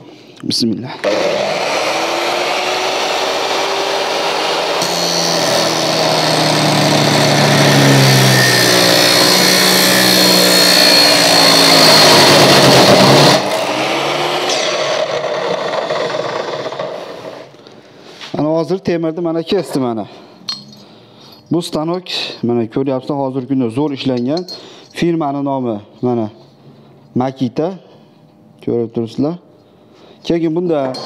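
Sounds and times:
abrasive disc grinding steel: 0:01.0 - 0:17.5
saw motor running: 0:01.0 - 0:17.5.

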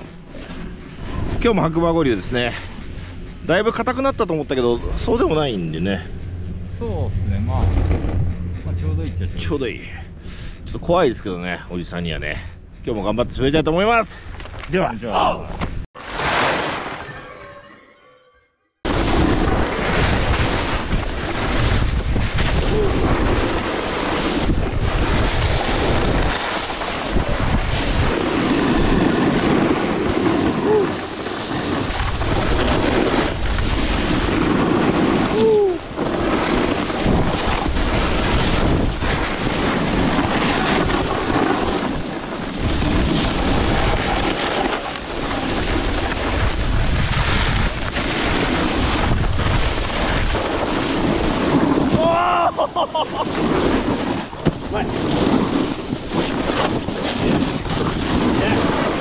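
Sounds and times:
wind rushing over microphone: 0:00.0 - 0:14.1, 0:18.8 - 0:59.0
snowboards scraping over snow: 0:18.9 - 0:59.0.

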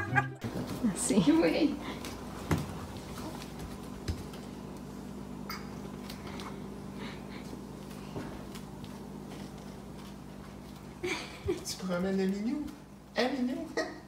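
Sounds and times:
small footsteps: 0:00.4 - 0:13.1.

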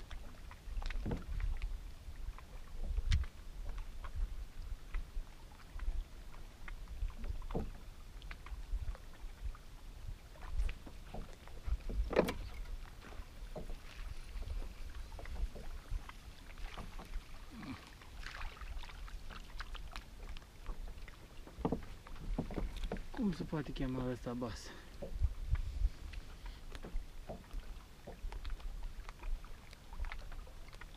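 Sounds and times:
water slapping against hull: 0:00.0 - 0:30.9
light knocks and ticks: 0:10.7 - 0:15.8, 0:20.3 - 0:23.1, 0:26.1 - 0:29.2
low wind rumble: 0:22.2 - 0:27.7.

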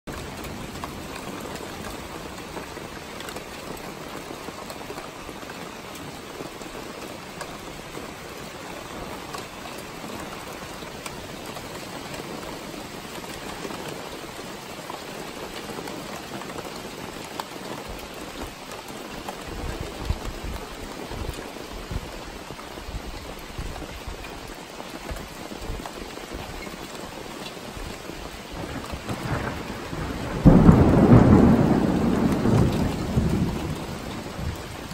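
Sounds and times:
steady rain falling: 0:00.1 - 0:34.9.

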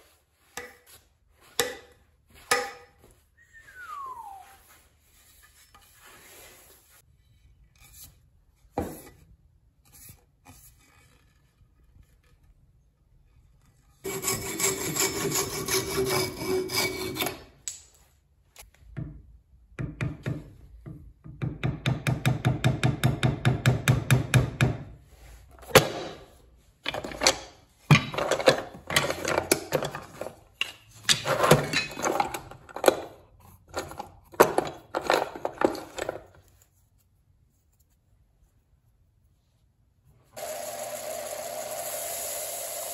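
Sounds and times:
hand tool rasping wood: 0:14.0 - 0:17.5.

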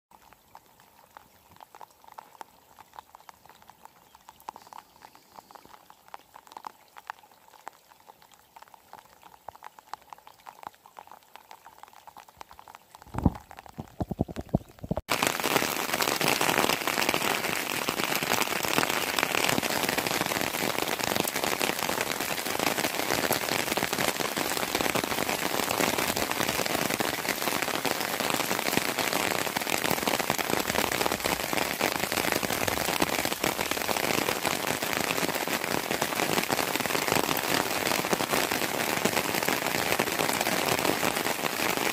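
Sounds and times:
faint drips: 0:00.1 - 0:15.0
heavy rain pattering: 0:00.2 - 0:41.9.

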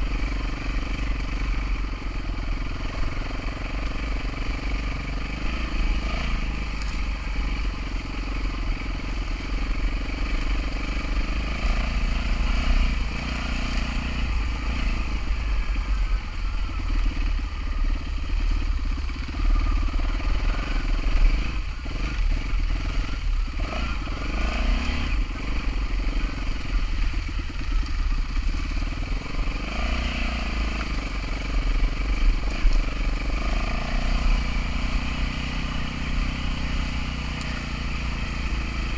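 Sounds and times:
motorcycle engine revving: 0:00.0 - 0:38.9.

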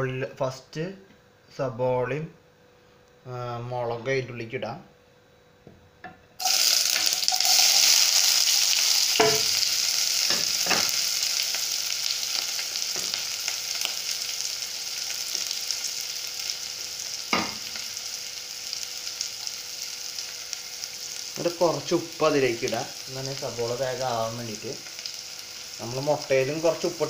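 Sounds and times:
onions sizzling in hot oil: 0:06.4 - 0:27.0.

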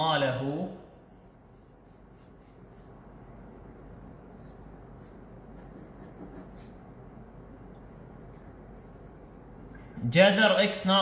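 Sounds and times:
low steady hum: 0:00.0 - 0:11.0
pen scratching handwriting: 0:04.4 - 0:06.8.

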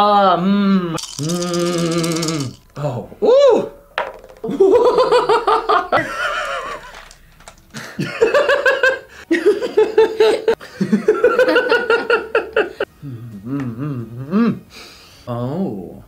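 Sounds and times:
people laughing: 0:04.4 - 0:07.1, 0:07.7 - 0:12.9.

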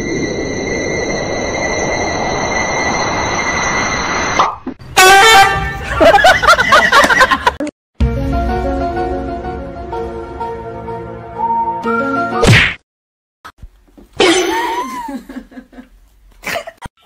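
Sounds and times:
loud horn-like blast: 0:04.8 - 0:05.9
music: 0:08.0 - 0:12.5.

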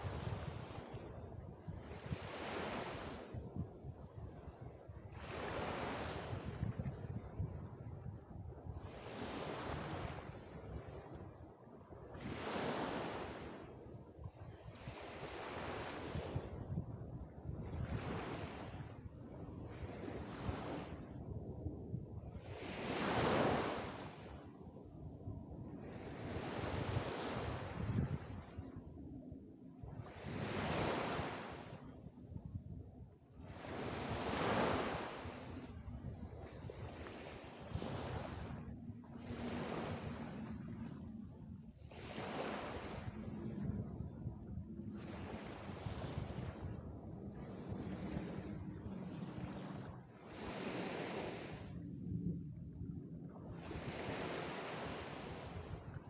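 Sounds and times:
waves washing up a beach: 0:00.0 - 0:03.6, 0:04.4 - 0:11.4, 0:12.0 - 0:21.4, 0:22.0 - 0:29.2, 0:29.9 - 0:31.8, 0:33.4 - 0:51.9, 0:53.5 - 0:56.0
wind rumbling on microphone: 0:00.0 - 0:56.0.

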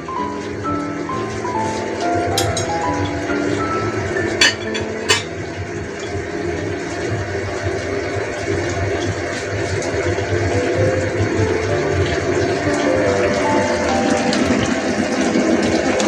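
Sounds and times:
sauce simmering in a wok: 0:05.4 - 0:12.9.

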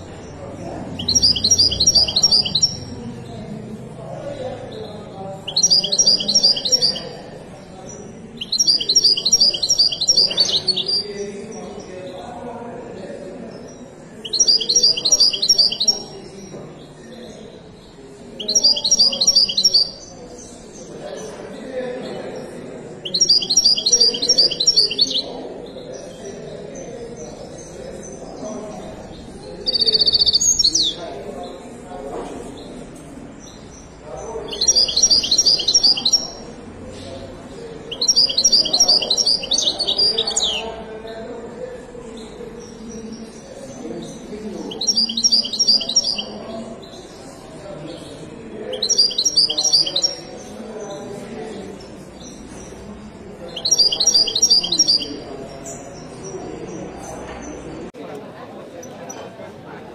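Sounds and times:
goldfinch twittering song: 0:00.0 - 0:03.0, 0:04.6 - 0:11.8, 0:13.5 - 0:17.2, 0:17.8 - 0:21.3, 0:22.4 - 0:31.0, 0:33.4 - 0:37.2, 0:37.9 - 0:40.7, 0:42.2 - 0:47.2, 0:47.9 - 0:50.9, 0:51.6 - 0:57.2.

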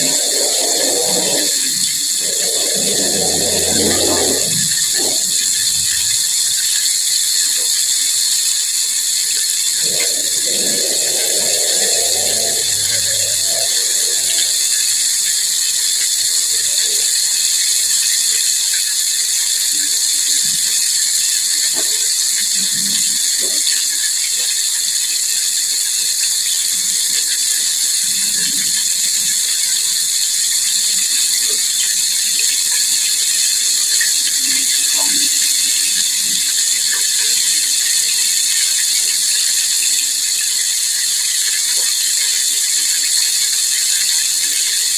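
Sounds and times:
hot oil sizzling: 0:00.0 - 0:44.9.

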